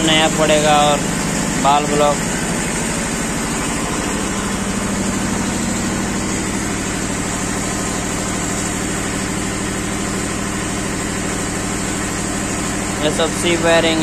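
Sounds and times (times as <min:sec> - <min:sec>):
engine idling: 0:00.0 - 0:14.0.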